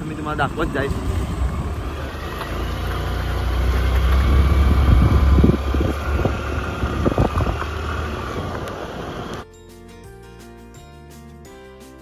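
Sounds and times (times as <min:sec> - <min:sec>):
vehicle engine rumbling: 0:00.0 - 0:09.4.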